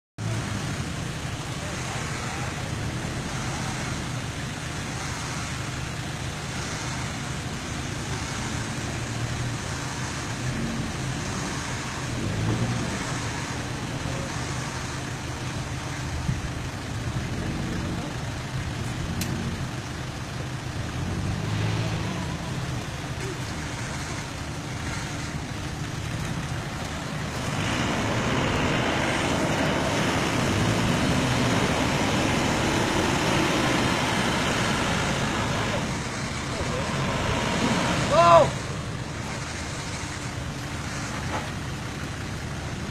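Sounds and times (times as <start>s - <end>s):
pickup truck engine running: 0.2s - 42.9s.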